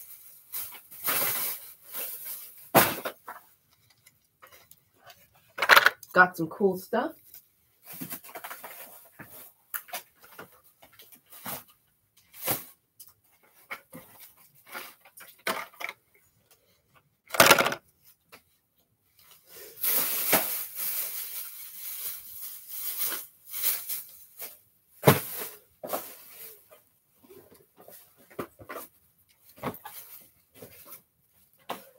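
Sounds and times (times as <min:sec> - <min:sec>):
rustling: 0:19.1 - 0:31.9.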